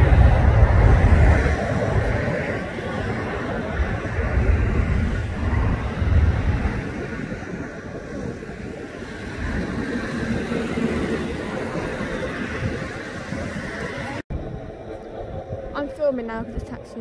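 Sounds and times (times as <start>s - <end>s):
jet engines rumbling: 0.0s - 17.0s.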